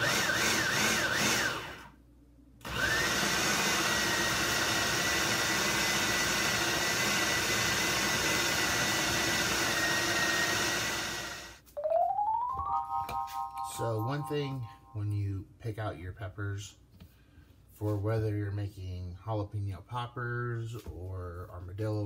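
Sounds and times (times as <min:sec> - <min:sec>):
food processor motor whining: 0:00.0 - 0:01.9, 0:02.6 - 0:11.6
rising tone: 0:11.8 - 0:15.0
music: 0:11.8 - 0:15.1.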